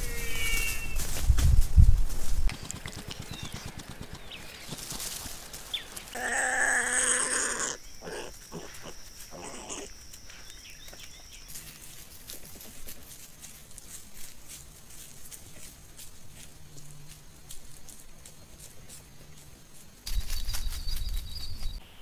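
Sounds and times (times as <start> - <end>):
harsh rasping animal call: 0.0 - 0.9, 6.1 - 9.9
animal rustling in leaf litter: 0.0 - 3.3, 4.6 - 6.4.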